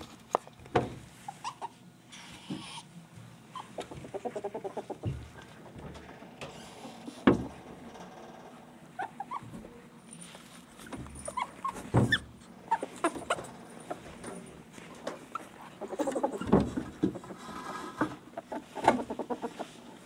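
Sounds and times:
ferrets squeaking and whimpering: 1.2s - 5.0s, 8.8s - 10.0s, 10.7s - 14.2s, 15.2s - 17.5s, 18.3s - 19.8s
ferrets clucking dooks: 1.2s - 7.3s, 8.0s - 9.8s, 11.2s - 20.0s.

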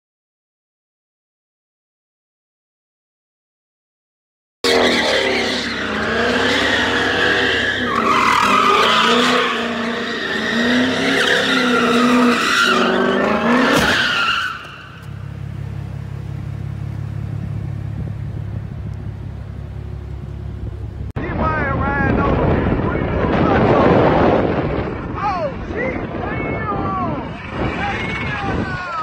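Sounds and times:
tyres squealing: 4.6s - 15.3s
car engine revving: 4.6s - 21.1s.

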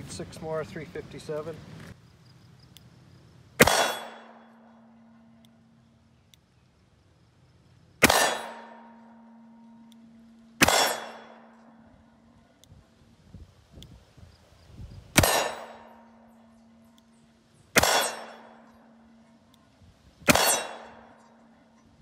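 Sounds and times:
revolver shots: 3.6s - 4.4s, 8.0s - 8.9s, 10.6s - 11.6s, 15.2s - 16.0s, 17.8s - 18.6s, 20.3s - 21.2s
steel target ringing: 3.6s - 5.4s, 8.0s - 12.2s, 15.2s - 17.0s, 17.8s - 19.4s, 20.3s - 21.8s.

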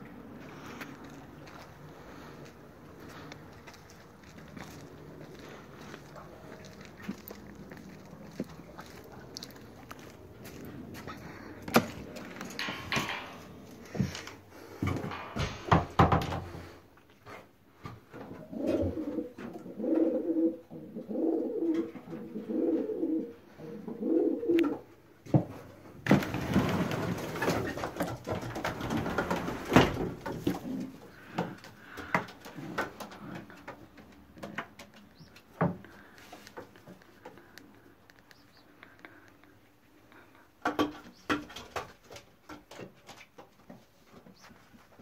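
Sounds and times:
pigeons cooing: 18.2s - 25.0s, 28.9s - 39.3s.

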